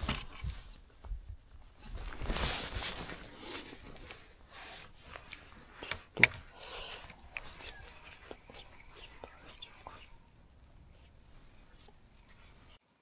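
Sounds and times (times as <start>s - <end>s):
clothing rubbing and rustling: 0.0s - 9.4s.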